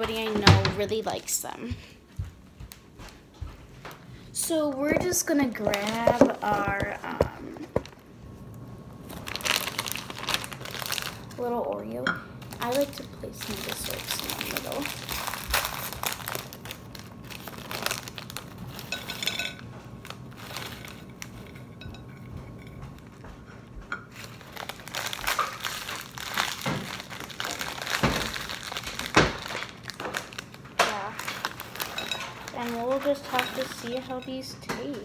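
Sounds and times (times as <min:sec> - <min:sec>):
plastic wrappers crinkling: 0:04.8 - 0:08.0, 0:09.1 - 0:22.0, 0:24.1 - 0:34.6.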